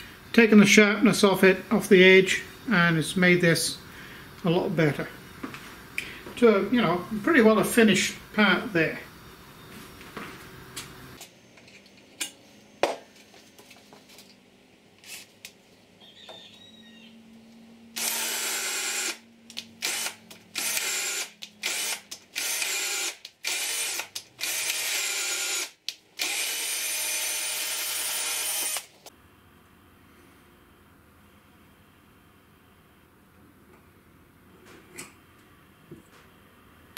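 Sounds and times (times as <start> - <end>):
electric drill boring into metal: 18.0 - 19.2, 19.8 - 28.9.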